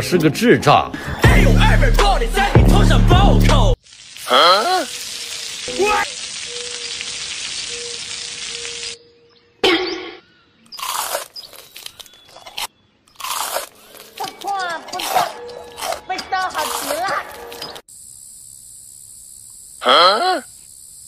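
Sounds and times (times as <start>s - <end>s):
food sizzling in oil: 3.7s - 9.0s
crunchy bites: 10.6s - 17.8s.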